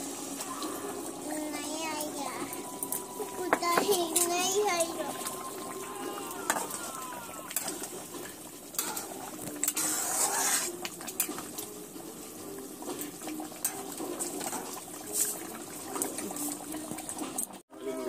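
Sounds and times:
thick curry simmering: 2.7 - 18.0
metal spoon scraping metal pan: 8.8 - 11.4
wet swish: 9.8 - 10.8.

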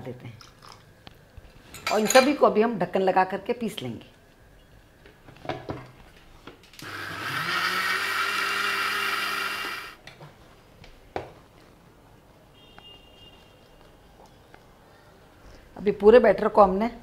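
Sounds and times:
mixer grinder motor running: 6.8 - 10.0.

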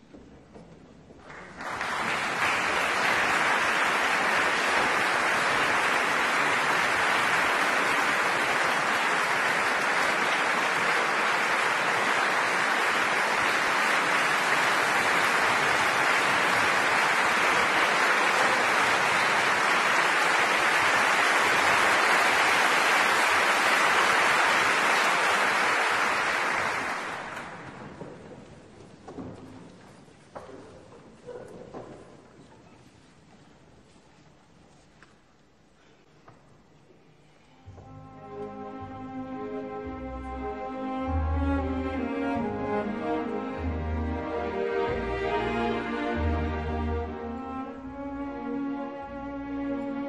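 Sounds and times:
audience applauding: 1.2 - 28.2.

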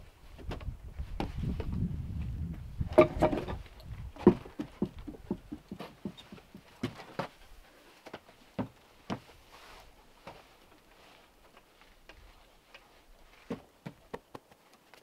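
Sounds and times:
wooden bench knocking on decking: 4.2 - 6.5
footsteps tapping on deck boards: 4.2 - 7.3, 8.1 - 9.3.

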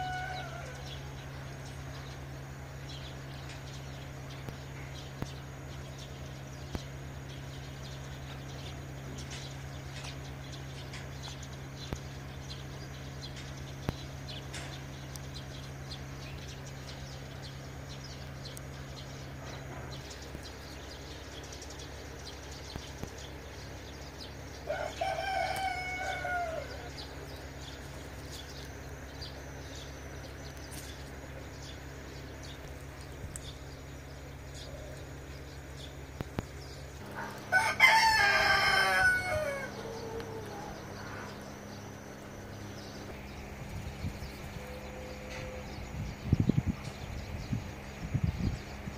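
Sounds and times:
rooster crowing: 0.0 - 1.3, 24.6 - 27.2, 37.1 - 41.7
steady low hum: 0.0 - 48.9.

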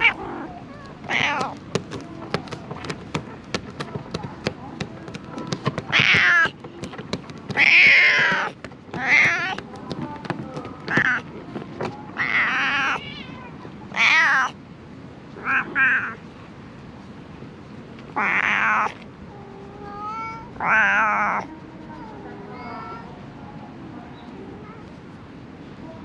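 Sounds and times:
cat meowing loudly: 0.0 - 1.6, 5.9 - 6.6, 7.6 - 9.6, 12.2 - 14.6, 15.4 - 16.2, 18.2 - 19.0, 19.8 - 21.5.

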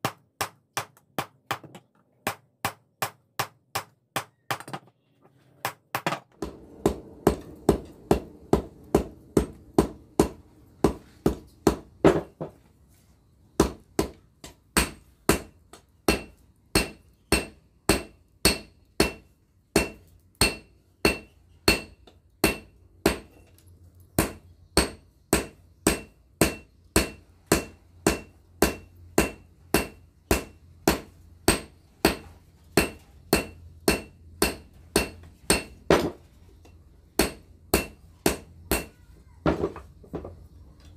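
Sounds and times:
low steady hum: 6.4 - 11.8
hammer striking iron on anvil: 6.4 - 12.3, 14.8 - 15.5, 16.1 - 19.2, 19.8 - 23.4, 24.2 - 32.2, 32.8 - 36.2, 37.2 - 39.0.

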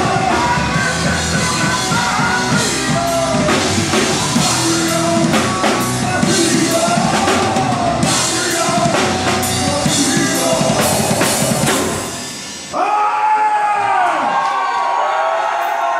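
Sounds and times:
live metal band playing loud: 0.0 - 12.8
pounding drum kit: 0.0 - 13.0
crowd shouting and cheering: 0.0 - 15.9.

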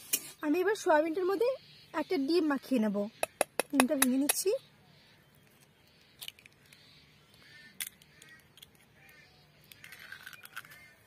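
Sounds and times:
eggshell clicks and taps: 3.2 - 4.4
eggshell being pulled apart: 9.7 - 11.0.

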